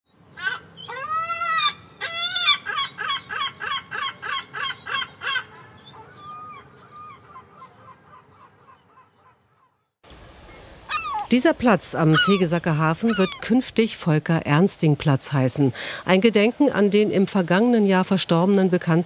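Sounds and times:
gull calling: 0:00.3 - 0:09.9, 0:10.8 - 0:13.8.

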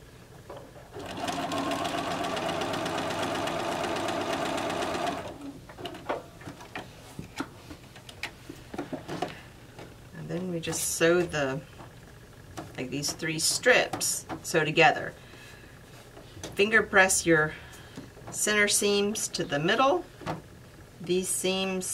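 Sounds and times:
sewing machine stitching: 0:01.0 - 0:05.5.

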